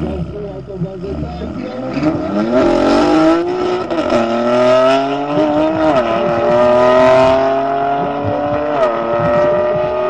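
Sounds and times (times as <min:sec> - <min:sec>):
cars accelerating hard: 0:01.0 - 0:10.0.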